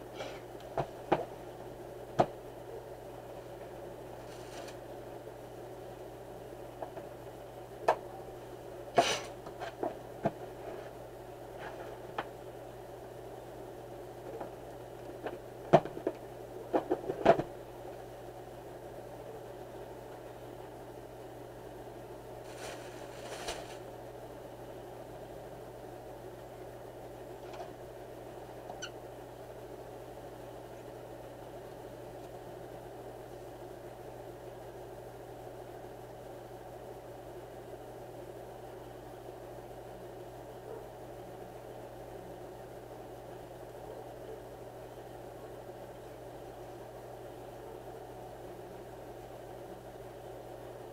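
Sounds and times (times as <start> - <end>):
steady low hum: 0.0 - 50.9
cardboard rustle: 22.4 - 23.8.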